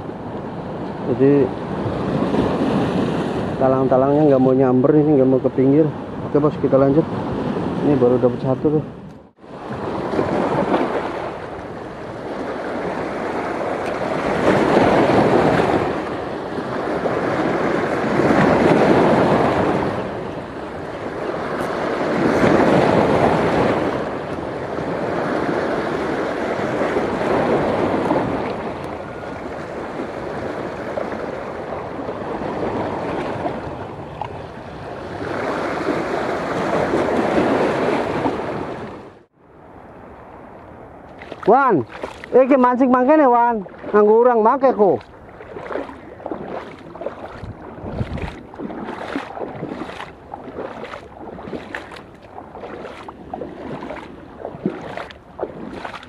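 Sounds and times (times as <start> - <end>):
sea waves breaking on rocks: 0.7 - 3.8, 9.4 - 39.2, 41.3 - 56.0.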